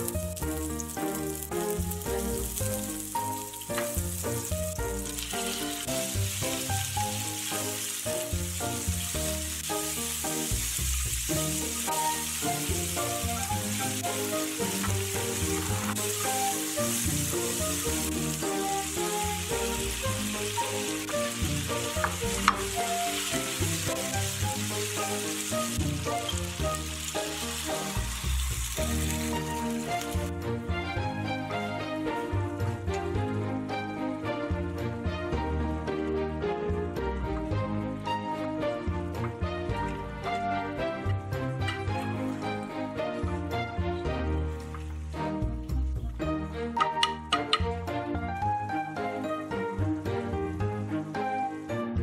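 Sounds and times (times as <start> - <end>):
oil sizzling in a pan: 0.0 - 34.2
light background music: 0.0 - 52.0.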